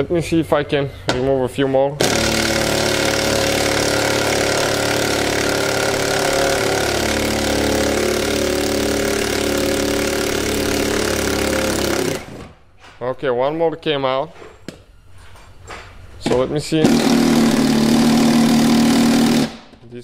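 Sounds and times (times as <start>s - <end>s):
power tool motor running: 2.0s - 12.5s, 16.8s - 19.6s.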